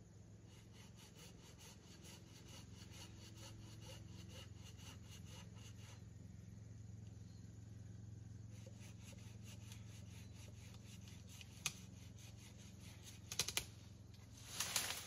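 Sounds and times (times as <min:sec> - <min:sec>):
branches snapping: 0:13.2 - 0:13.7, 0:14.4 - 0:15.0
rustling crack in shrubbery: 0:13.3 - 0:15.0.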